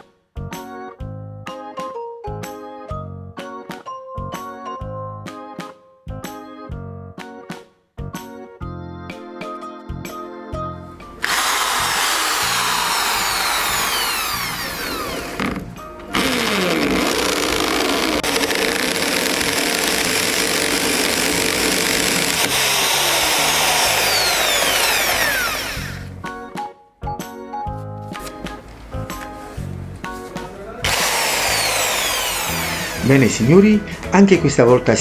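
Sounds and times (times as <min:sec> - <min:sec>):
background music: 0:00.0 - 0:35.0
electric drill boring into wall: 0:11.2 - 0:26.2, 0:30.8 - 0:33.4.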